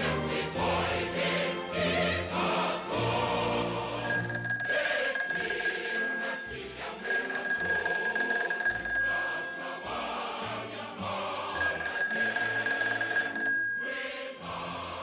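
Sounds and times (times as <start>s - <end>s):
background music: 0.0s - 15.0s
desk telephone ringing: 4.0s - 10.7s, 11.5s - 14.4s.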